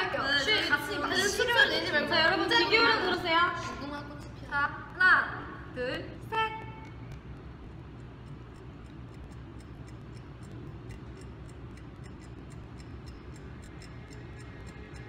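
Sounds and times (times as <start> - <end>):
low room hum: 0.0 - 15.0
clock-like ticking: 6.6 - 15.0.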